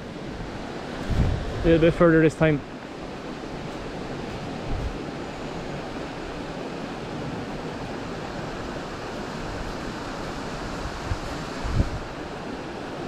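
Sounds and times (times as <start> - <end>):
fast-flowing river rushing: 0.0 - 13.0
wind rumbling on microphone: 0.0 - 13.0.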